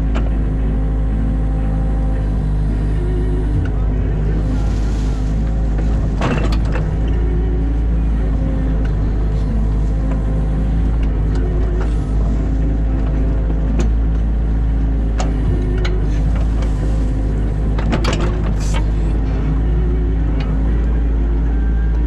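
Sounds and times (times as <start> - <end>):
excavator diesel engine: 0.0 - 22.0.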